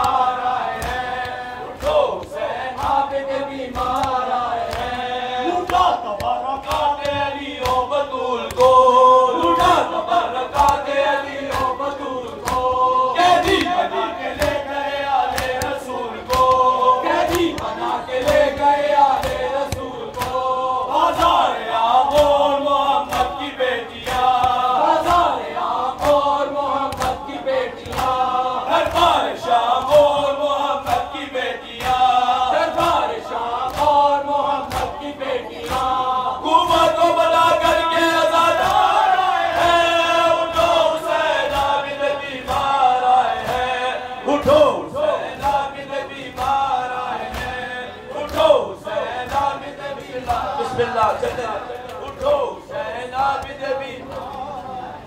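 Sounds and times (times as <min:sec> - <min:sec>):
men chanting in unison: 0:00.0 - 0:55.0
hand slaps on chest: 0:15.3 - 0:16.7.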